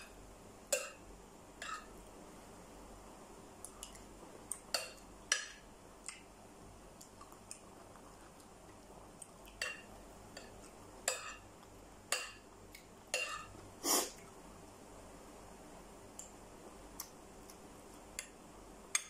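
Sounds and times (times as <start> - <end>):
metal spoon clinking on plate: 13.2 - 13.5.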